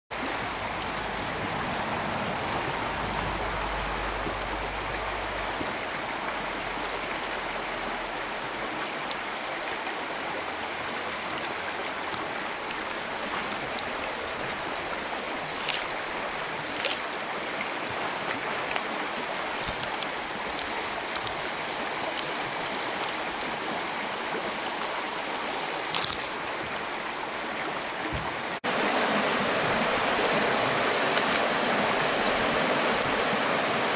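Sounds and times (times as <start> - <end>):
river water rushing over rocks: 0.2 - 33.9
sharp clicks: 15.5 - 15.9.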